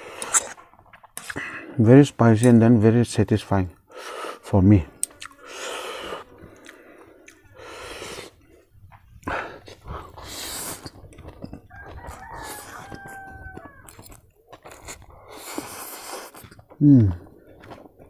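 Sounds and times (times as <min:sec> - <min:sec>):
noodles being slurped: 0:00.0 - 0:01.5, 0:09.6 - 0:11.0, 0:13.9 - 0:16.7
rooster crowing: 0:11.6 - 0:14.2.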